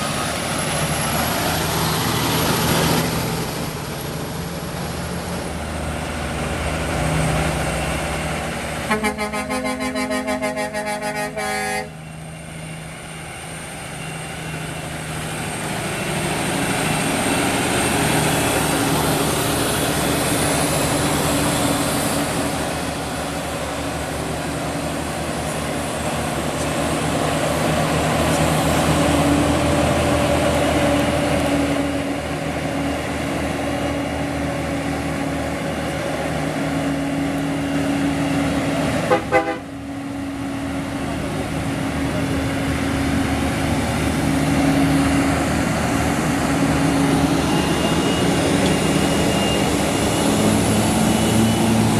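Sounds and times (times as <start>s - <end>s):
diesel truck engines droning: 0.0s - 51.9s
air horn: 8.9s - 12.0s, 39.1s - 39.7s.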